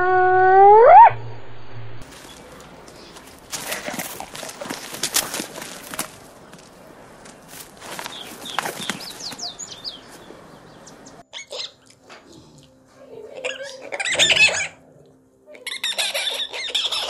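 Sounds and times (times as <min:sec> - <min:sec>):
macaque squawking calls: 0:11.3 - 0:11.8, 0:13.4 - 0:14.8, 0:15.5 - 0:17.0.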